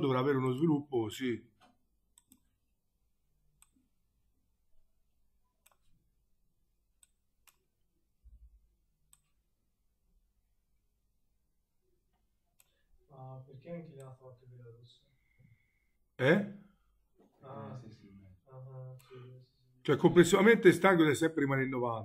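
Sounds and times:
faint computer mouse clicks: 1.6s - 2.5s, 12.6s - 12.8s.

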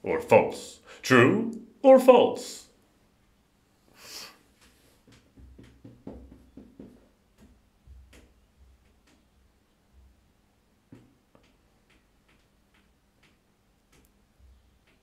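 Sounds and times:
short soft hiss: 3.9s - 4.9s
faint clicks and taps: 4.5s - 15.0s.

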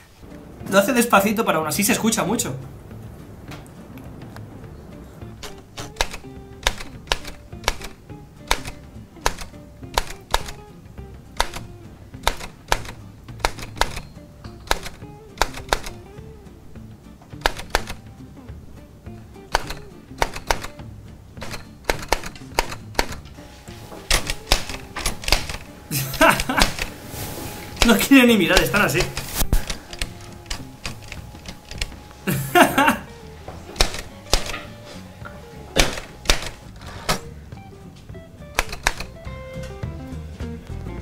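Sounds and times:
manual typewriter keys clacking: 5.4s - 10.7s, 11.4s - 16.0s, 17.4s - 18.1s, 19.5s - 20.8s, 21.4s - 27.0s, 27.7s - 33.0s, 33.7s - 34.8s, 35.8s - 37.2s, 38.5s - 39.3s.

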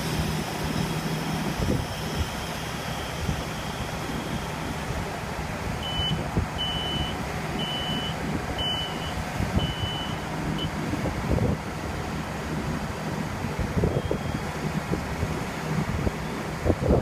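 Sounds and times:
diesel engine running: 0.0s - 17.0s
short high warning beeps: 2.4s - 4.9s, 5.8s - 10.8s, 13.9s - 14.5s.

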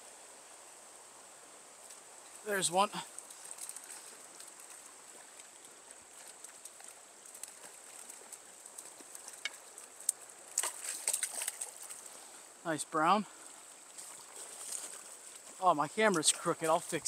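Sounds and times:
faint steady hiss: 0.0s - 17.0s
high insect drone: 0.0s - 17.0s
fish splashing at surface: 3.3s - 12.2s.

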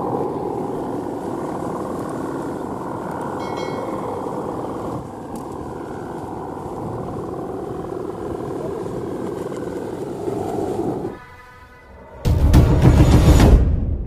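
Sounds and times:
wind rumble on microphone: 0.0s - 11.1s
kite bow hummer droning: 0.0s - 12.4s.

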